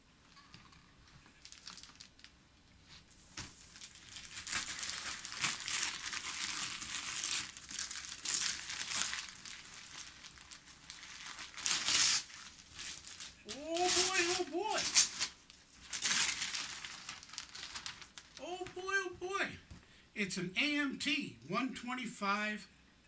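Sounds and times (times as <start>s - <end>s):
wrapping paper tearing and rustling: 1.3s - 2.3s, 2.9s - 18.4s.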